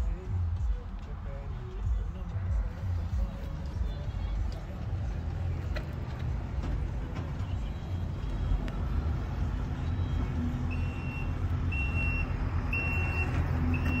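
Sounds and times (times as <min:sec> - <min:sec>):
steady low rumble: 0:00.0 - 0:09.8
high electronic warning beep: 0:09.8 - 0:14.0.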